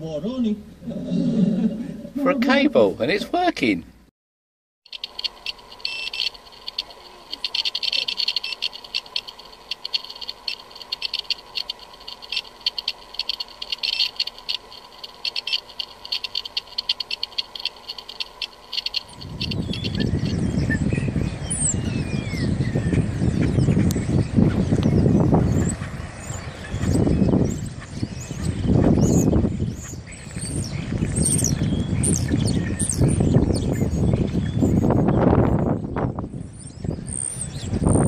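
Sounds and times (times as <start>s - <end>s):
fast irregular crackling: 4.9s - 20.3s
faint bird chirps: 4.9s - 38.0s
power inverter whine: 4.9s - 38.0s
wind buffeting microphone: 15.9s - 38.0s.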